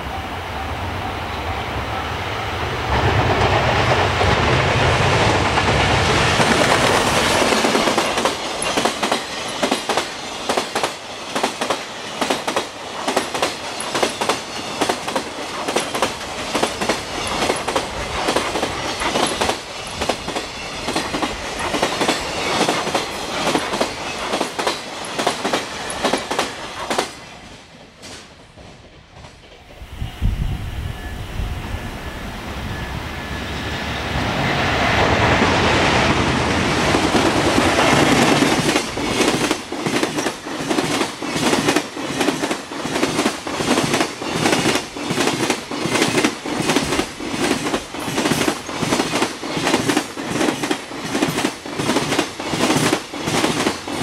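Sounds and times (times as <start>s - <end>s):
train wheels clacking on rail joints: 2.9s - 29.9s, 36.7s - 54.0s.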